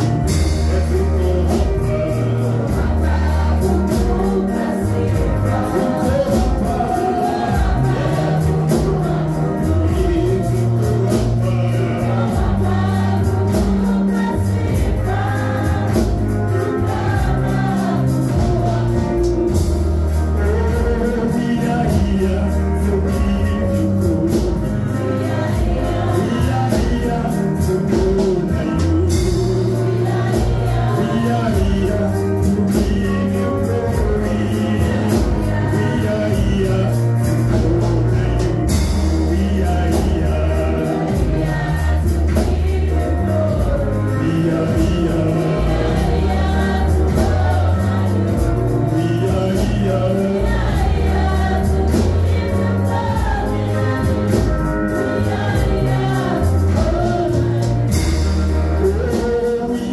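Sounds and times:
man singing: 0.0 - 12.9, 20.4 - 42.2, 43.0 - 46.2, 48.4 - 50.6, 55.9 - 59.9
backing singers: 0.0 - 59.9
drums with steady beat: 0.0 - 59.9
keyboard: 0.0 - 59.9.

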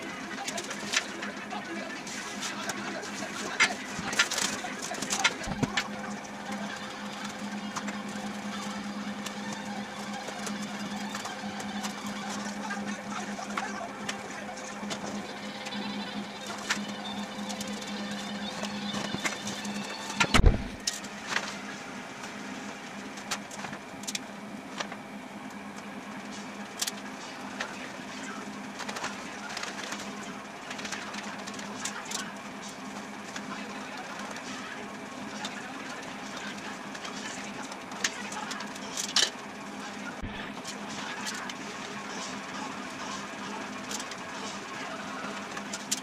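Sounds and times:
steady hum: 0.0 - 46.0
paper rustling: 0.3 - 15.2, 26.3 - 34.6.

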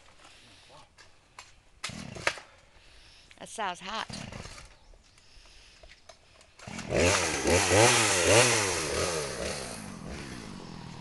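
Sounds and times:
chainsaw revving: 1.8 - 2.5, 4.1 - 4.8, 6.5 - 11.0.

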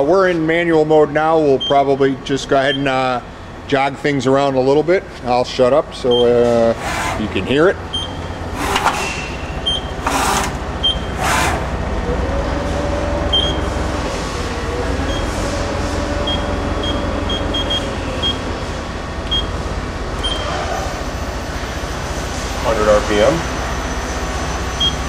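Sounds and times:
machine low hum: 1.2 - 25.0
lathe axis drives whining: 5.6 - 25.0.

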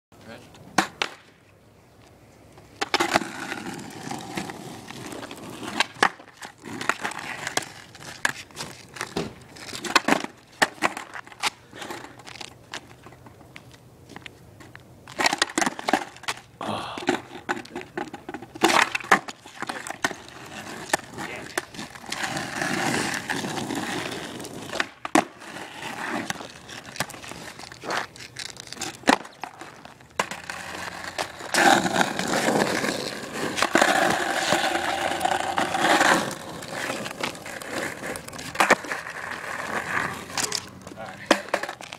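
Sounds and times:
skateboard clacking on ground: 0.7 - 1.3, 2.6 - 41.9
skateboard rolling on asphalt: 0.7 - 41.9.

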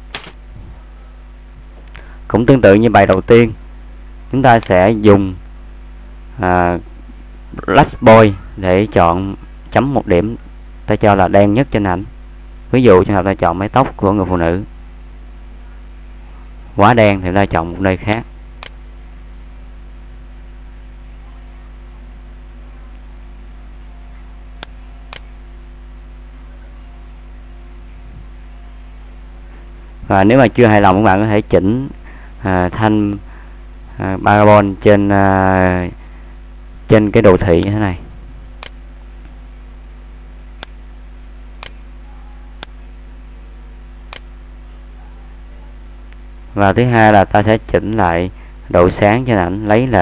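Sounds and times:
electrical hum and hiss: 0.0 - 50.0
computer mouse clicks: 24.6 - 25.3.

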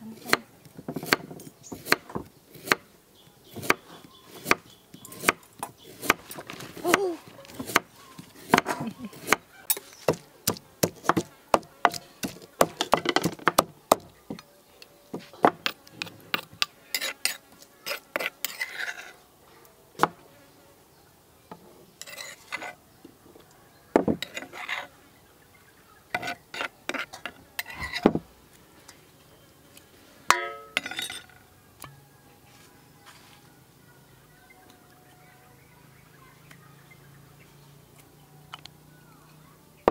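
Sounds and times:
metal spoon scraping mortar: 7.5 - 10.2, 15.6 - 19.2, 22.0 - 22.8, 24.2 - 24.9, 26.1 - 28.1, 30.3 - 31.4
pestle pounding in wooden mortar: 10.1 - 14.1.

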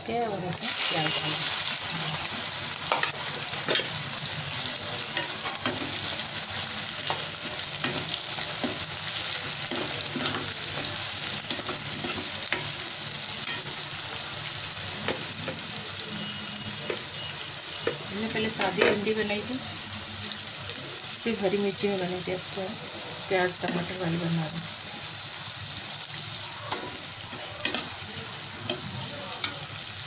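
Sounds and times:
onions sizzling in hot oil: 0.0 - 30.0
spoon scraping a pan: 7.0 - 13.9.

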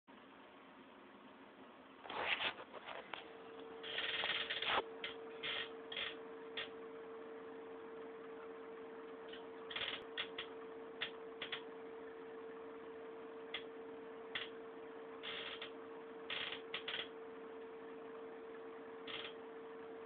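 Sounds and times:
steady faint hum: 0.1 - 20.0
brief rubbing scrapes: 2.0 - 6.1.

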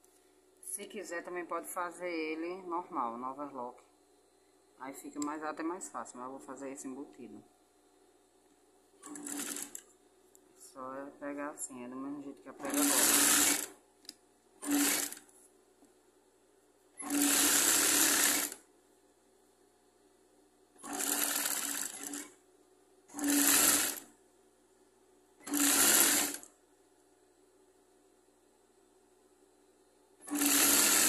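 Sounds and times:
sewing machine stitching: 9.0 - 9.9, 12.6 - 13.8, 14.6 - 15.3, 17.0 - 18.6, 20.8 - 22.4, 23.1 - 24.1, 25.4 - 26.5, 30.2 - 31.0.

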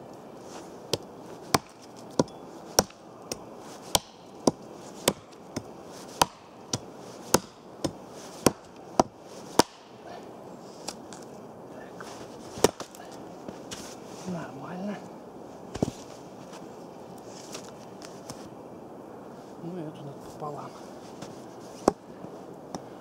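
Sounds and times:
hatchet chopping a branch: 0.9 - 10.0, 12.6 - 13.0.

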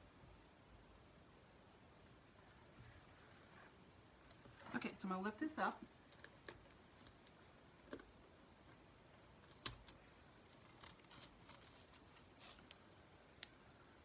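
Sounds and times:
stencil peeling clicks and crackles: 5.9 - 13.6.

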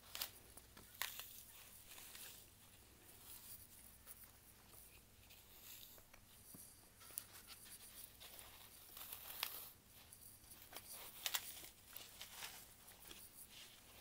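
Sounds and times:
floral foam crackling and crunching: 0.0 - 3.5.

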